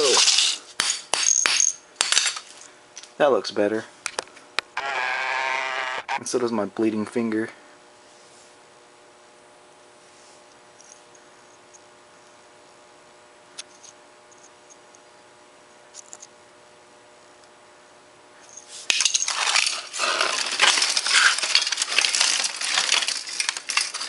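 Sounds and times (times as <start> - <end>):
laptop parts clattering: 18.9 - 24.0.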